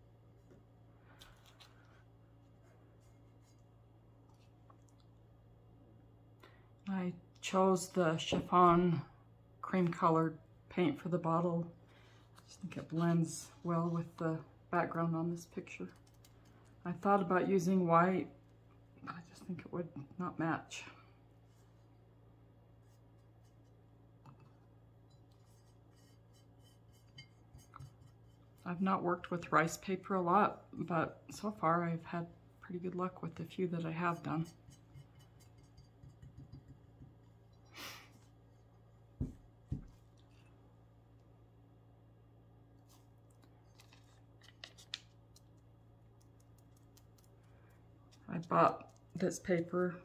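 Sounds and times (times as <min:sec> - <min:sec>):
low steady hum: 0:00.0 - 0:50.0
faint clicks and taps: 0:43.2 - 0:49.7.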